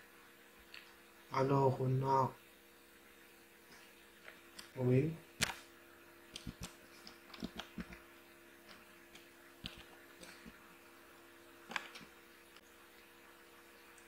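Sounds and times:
faint electrical hum: 0.0 - 14.0
keyboard and mouse clicks: 5.4 - 5.6, 6.3 - 8.0, 8.7 - 10.5, 11.7 - 12.1.

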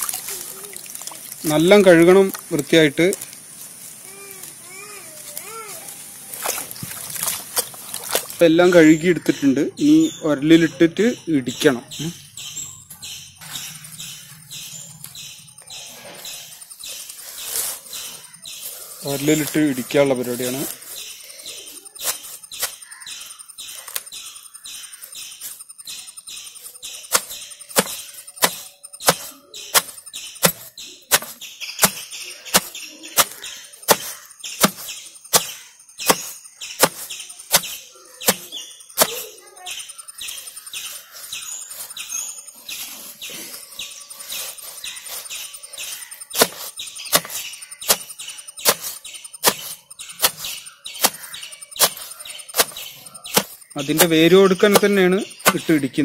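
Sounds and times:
pestle thudding in stone mortar: 27.1 - 37.7, 46.4 - 48.1, 52.6 - 54.1.

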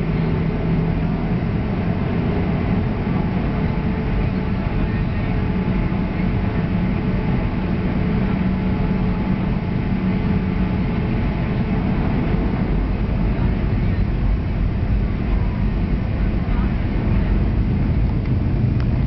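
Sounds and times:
airliner engines droning in cabin: 0.0 - 19.0.

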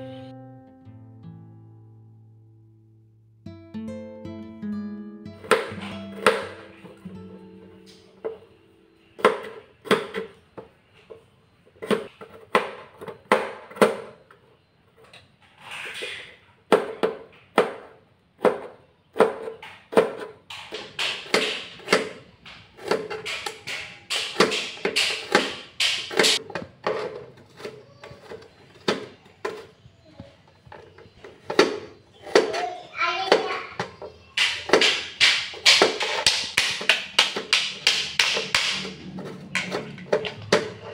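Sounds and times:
knife chopping on cutting board: 5.4 - 6.8, 16.7 - 28.4.

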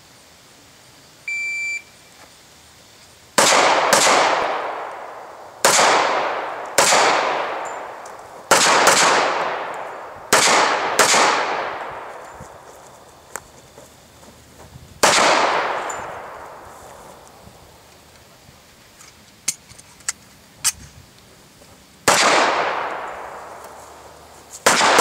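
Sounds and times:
shot timer beep: 1.3 - 1.9
pistol shots echoing: 3.4 - 12.2, 15.0 - 16.7, 22.1 - 23.7, 24.6 - 25.0.

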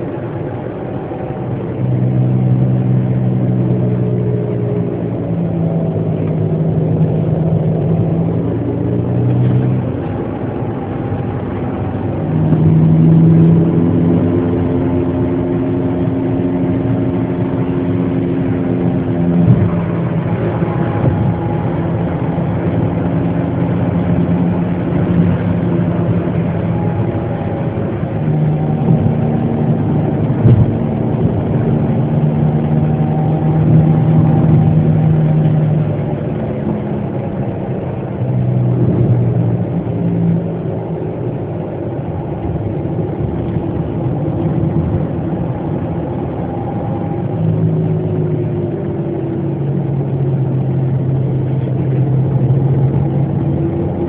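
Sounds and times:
car engine while driving: 0.0 - 54.0
road noise: 0.0 - 54.0.

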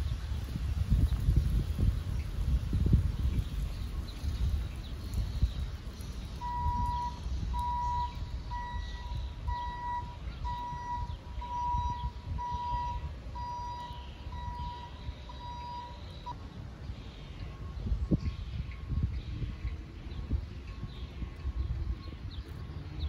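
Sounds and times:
electronic alarm beeping: 6.4 - 16.4.

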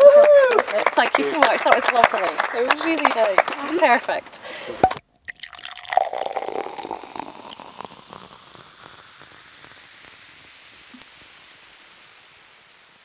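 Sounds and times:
steady background hiss: 5.8 - 13.0.

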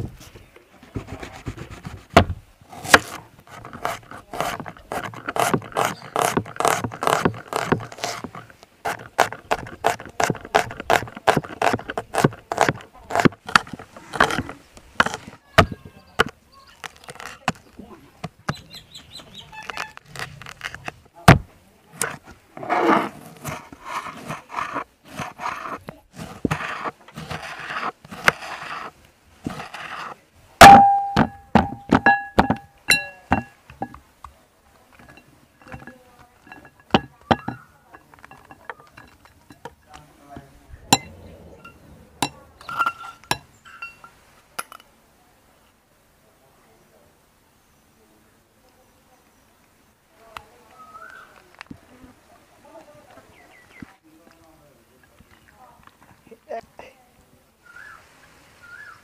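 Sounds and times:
knife chopping on wooden board: 1.2 - 16.3
clinks against glass bowl: 30.6 - 34.0, 35.0 - 39.6, 40.9 - 44.9.

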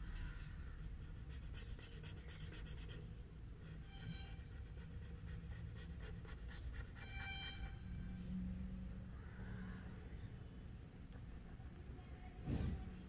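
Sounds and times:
felt-tip pen scribbling on paper: 1.0 - 3.1, 3.8 - 7.7.

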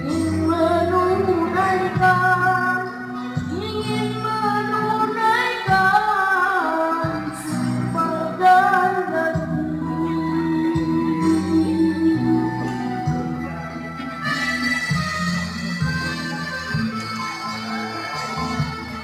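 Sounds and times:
boy singing into a microphone: 0.0 - 13.6
keyboard backing track: 0.0 - 19.0.

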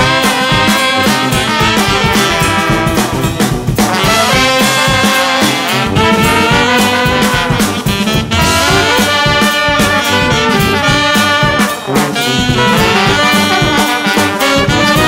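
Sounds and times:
jazz-blues music: 0.0 - 15.0
steady drum beat: 0.0 - 15.0.

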